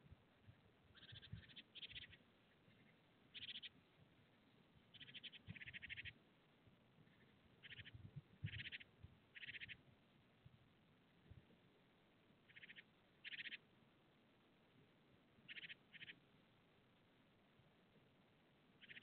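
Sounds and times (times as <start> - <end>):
short trilling animal calls: 1.0 - 3.7, 4.9 - 6.2, 7.1 - 9.8, 12.5 - 13.6, 15.5 - 16.2, 18.8 - 19.0.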